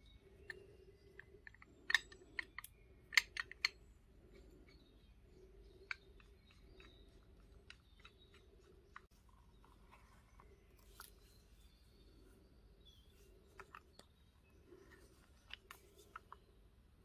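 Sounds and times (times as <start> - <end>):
small hard parts clicking: 0.0 - 4.8, 5.7 - 9.1.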